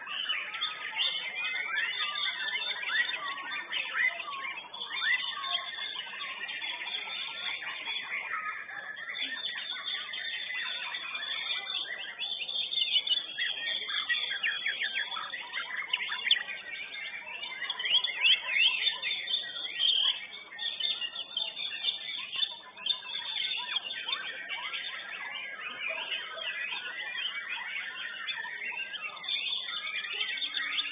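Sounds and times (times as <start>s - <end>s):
songbird whistling song: 0.0s - 30.9s.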